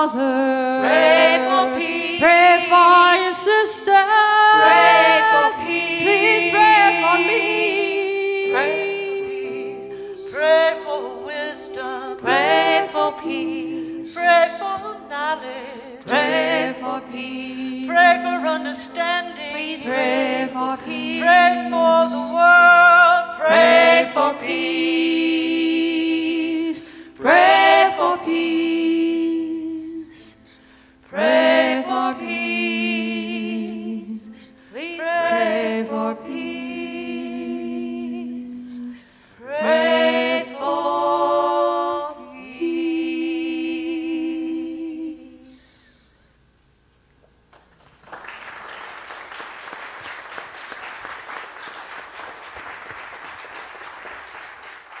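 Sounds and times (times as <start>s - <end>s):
group of voices singing: 0.0s - 46.2s
audience applauding: 47.5s - 55.0s.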